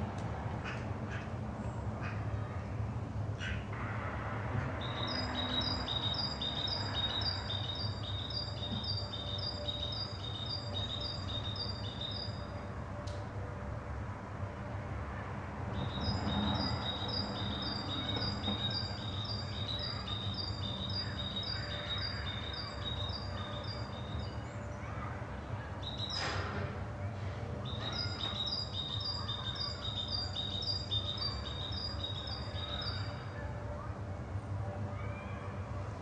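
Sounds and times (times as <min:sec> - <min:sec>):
songbird singing high clear notes: 0:04.8 - 0:12.5, 0:15.8 - 0:24.4, 0:27.7 - 0:33.1.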